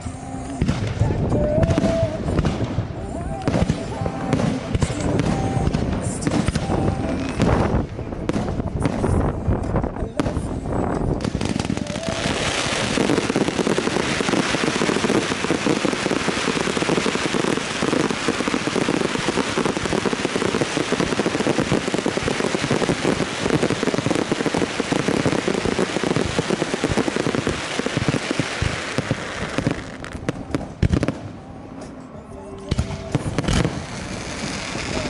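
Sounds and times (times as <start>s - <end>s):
fireworks crackling: 0.0s - 32.1s, 32.7s - 35.0s
deep firework bangs: 0.6s - 31.4s, 32.7s - 35.0s.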